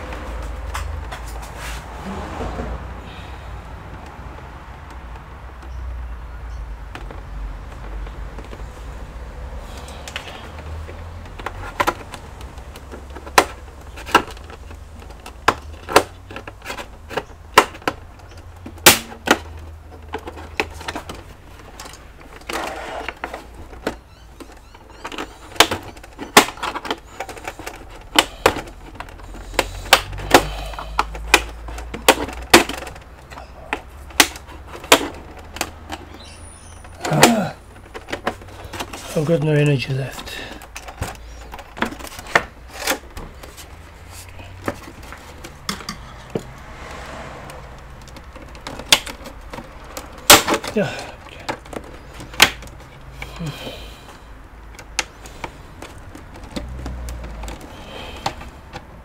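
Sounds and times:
plastic clips clicking and snapping: 9.8 - 36.3, 36.9 - 43.8, 47.4 - 53.6, 54.4 - 59.0.

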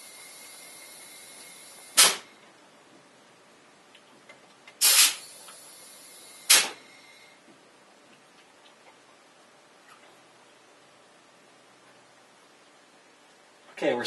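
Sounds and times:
compressed air hisses: 0.0 - 2.2, 4.8 - 7.3.

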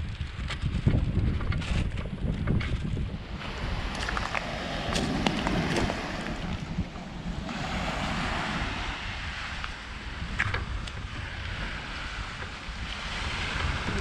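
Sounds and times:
wind buffeting microphone: 0.0 - 14.0
small waves washing ashore: 3.1 - 14.0
footsteps crunching on seashells: 3.6 - 6.6.

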